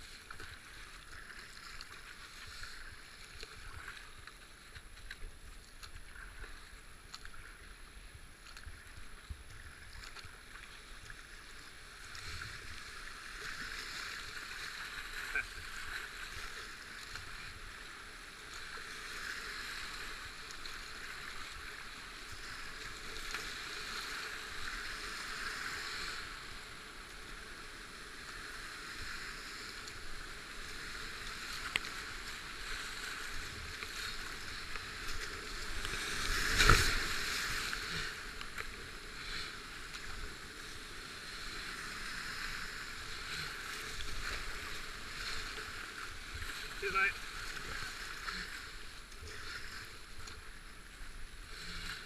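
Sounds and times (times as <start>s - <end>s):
paddle splashes: 0.0s - 27.5s, 28.2s - 52.0s
water surge: 31.2s - 40.2s.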